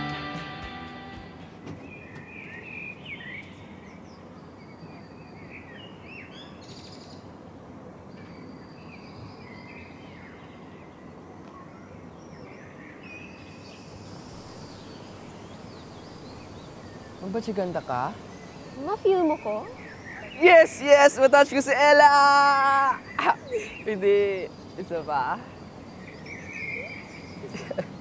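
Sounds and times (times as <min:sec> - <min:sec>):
background hiss: 0:00.0 - 0:28.0
small birds chirping: 0:01.1 - 0:07.3, 0:08.2 - 0:28.0.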